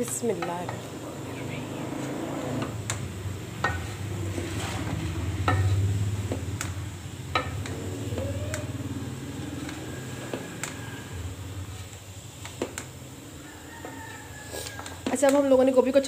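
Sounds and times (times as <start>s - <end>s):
spatula stirring in metal pot: 0.0s - 1.2s, 1.8s - 16.0s
spatula knocking against pot: 4.9s - 6.7s.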